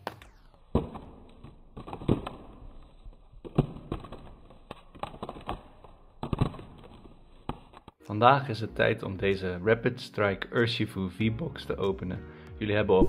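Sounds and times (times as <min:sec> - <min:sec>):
cards tapping onto a pile: 0:00.0 - 0:08.0.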